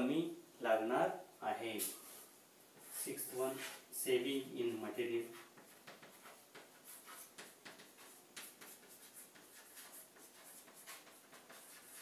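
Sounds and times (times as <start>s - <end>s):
chalk scratching on chalkboard: 2.8s - 3.9s, 5.2s - 12.0s.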